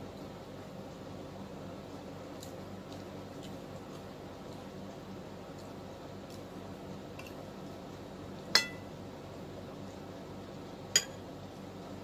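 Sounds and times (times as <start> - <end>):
cutlery clinking on dishes: 11.0 - 11.2.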